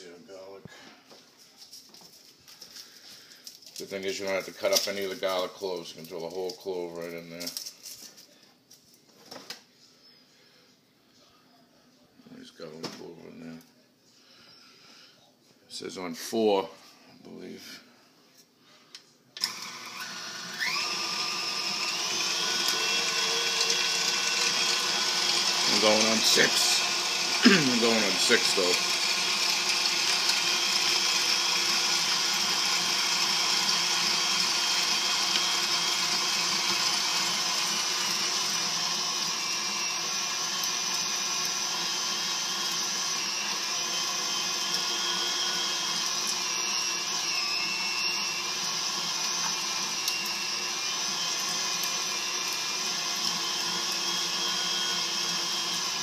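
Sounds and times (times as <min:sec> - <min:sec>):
stand mixer grinding meat: 0:19.4 - 0:56.0.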